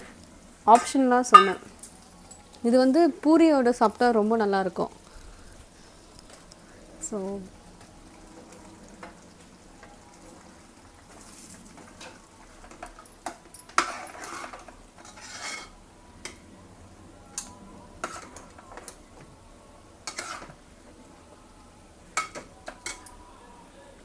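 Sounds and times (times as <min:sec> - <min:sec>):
ladle stirring thick gravy: 0:07.5 - 0:16.4, 0:18.0 - 0:19.0, 0:20.0 - 0:20.6
metal scraping: 0:13.6 - 0:15.8, 0:20.0 - 0:20.6.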